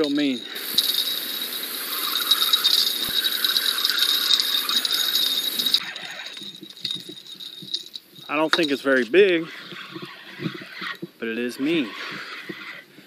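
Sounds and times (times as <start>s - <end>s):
fishing reel drag buzzing: 0.4s - 7.7s.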